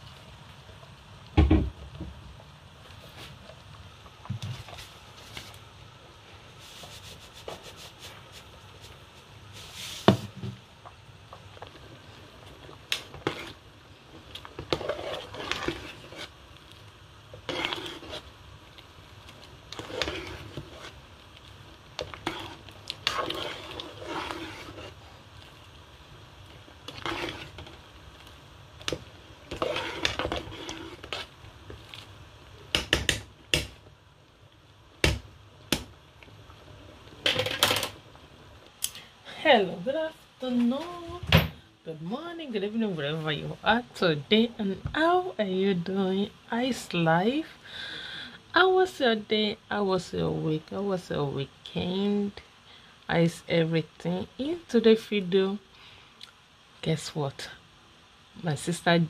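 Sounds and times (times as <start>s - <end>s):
metal spoon scraping in pot: 13.1s - 13.6s, 14.5s - 16.4s, 17.3s - 18.3s, 19.7s - 21.0s, 22.0s - 25.1s, 26.8s - 27.8s, 28.8s - 31.4s.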